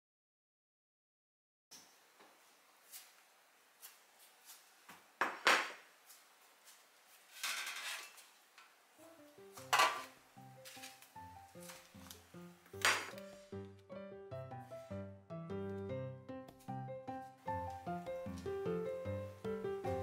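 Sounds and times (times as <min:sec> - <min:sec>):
background music: 0:09.0 - 0:20.0
metal tray set down: 0:09.7 - 0:10.9.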